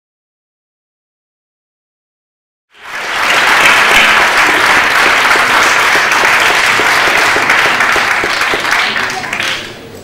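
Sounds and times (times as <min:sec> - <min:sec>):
audience applauding: 0:02.7 - 0:09.8.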